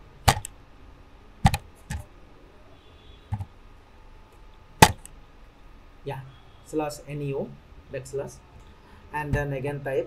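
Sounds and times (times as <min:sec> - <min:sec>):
keyboard keystrokes: 0:00.3 - 0:00.5, 0:01.4 - 0:02.0, 0:04.8 - 0:05.1.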